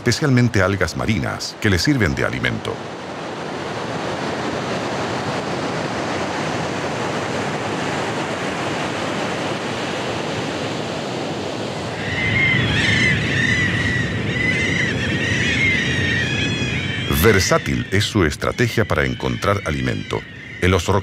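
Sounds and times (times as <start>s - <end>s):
ocean surf washing on beach: 0.0s - 15.2s
high arching bird calls: 12.0s - 21.0s.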